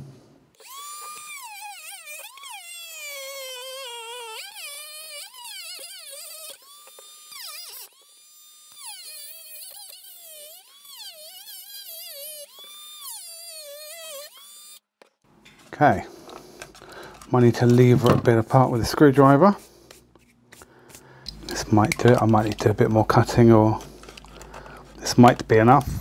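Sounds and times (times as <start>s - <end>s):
rotary tool cutting plastic: 0.6s - 15.2s, 19.9s - 26.0s.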